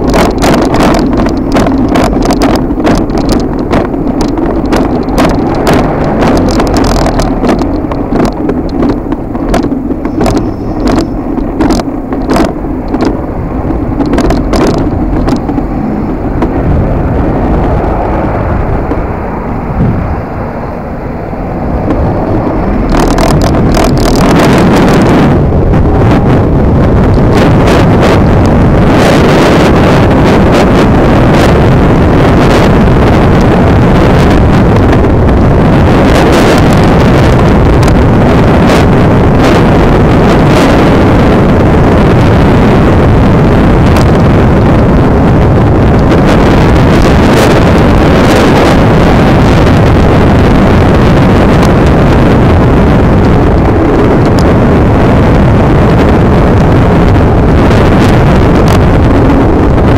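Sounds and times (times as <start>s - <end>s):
short crackles: 0.0s - 26.5s
wind buffeting microphone: 0.0s - 59.9s.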